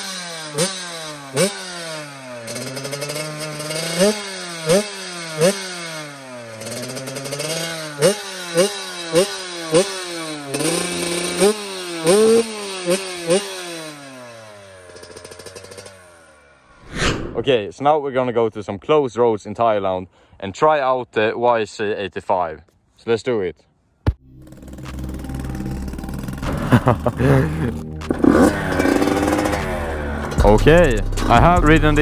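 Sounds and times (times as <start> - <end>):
two-stroke engine revving: 0.0 - 16.7, 24.4 - 32.0.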